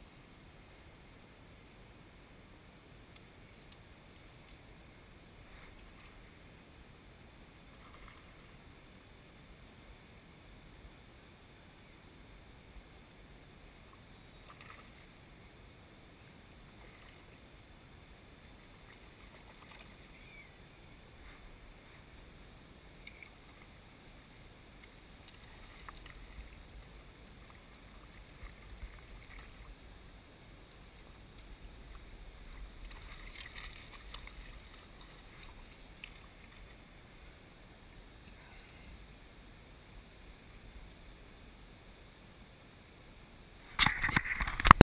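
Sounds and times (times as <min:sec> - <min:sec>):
water lapping around a boat: 0:16.6 - 0:17.5, 0:18.5 - 0:20.5, 0:24.8 - 0:29.8, 0:31.9 - 0:37.4.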